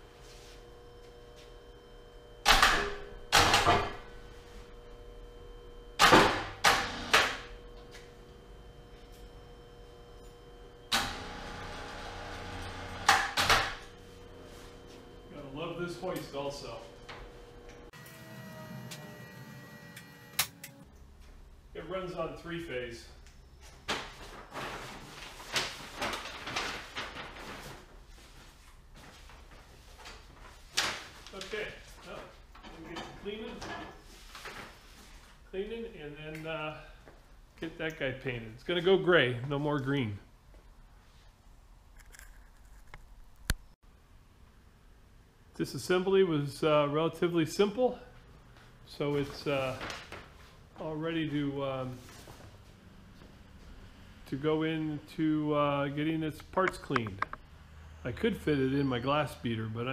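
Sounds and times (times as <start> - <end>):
paper rustling and crinkling: 23.9 - 31.6, 49.2 - 50.6.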